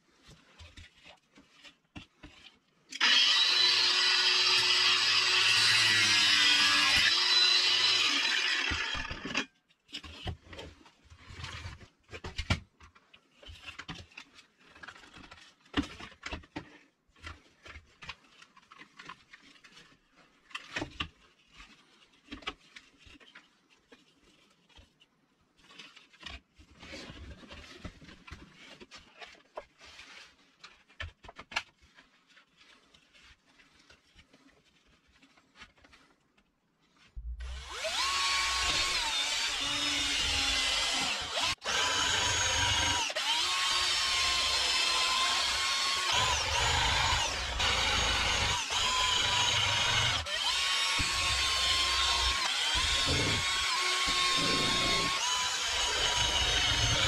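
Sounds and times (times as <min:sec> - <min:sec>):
cordless drill: 0:02.9 - 0:09.4, 0:37.4 - 0:57.0
angle grinder running: 0:03.0 - 0:09.3, 0:37.4 - 0:57.0.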